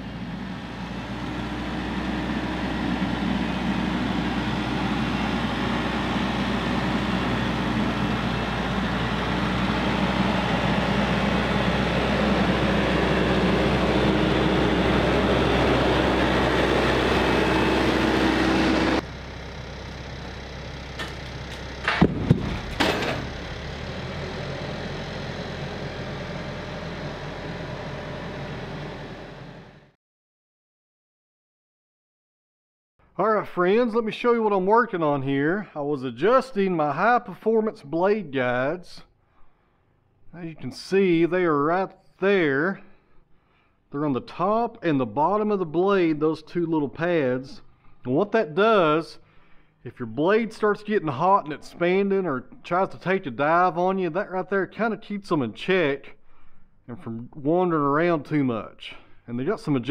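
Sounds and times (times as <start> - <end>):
tractor diesel engine running: 0.0 - 30.0
sharp knocks: 21.8 - 23.3.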